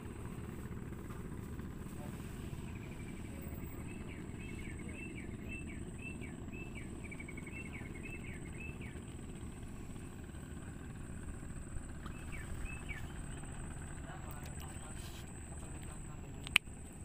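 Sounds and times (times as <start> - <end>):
high insect whine: 0.0 - 17.0
low steady rumble: 0.0 - 17.0
bird chirping: 2.7 - 9.2, 12.0 - 16.2.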